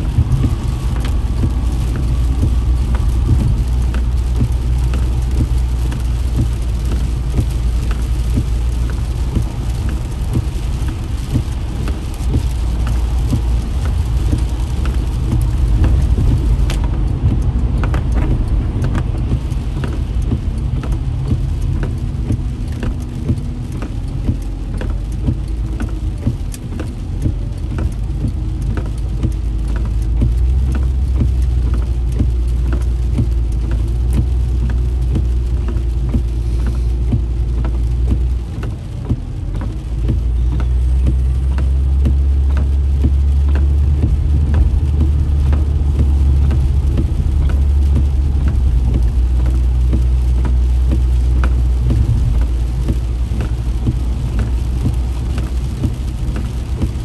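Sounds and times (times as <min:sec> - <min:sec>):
raindrops ticking on windshield: 0:00.0 - 0:57.0
road and engine rumble: 0:00.0 - 0:57.0.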